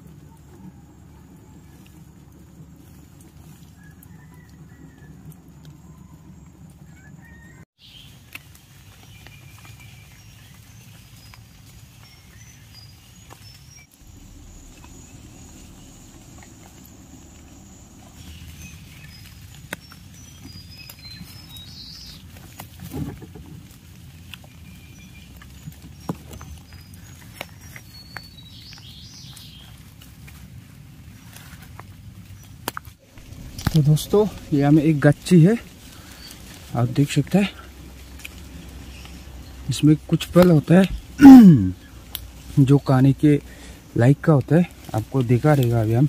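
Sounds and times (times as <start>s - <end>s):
footsteps through undergrowth: 7.2s - 46.0s
low background noise: 7.9s - 46.0s
bird chirps: 9.0s - 22.3s, 24.4s - 29.8s, 33.1s - 44.0s
twigs snapping: 31.8s - 41.2s, 41.8s - 42.6s.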